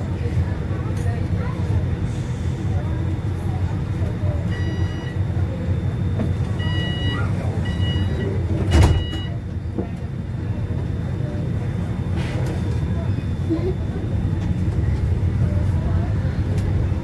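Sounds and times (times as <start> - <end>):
low hum of tram: 0.0 - 17.0
tram door warning beeps: 4.3 - 9.8.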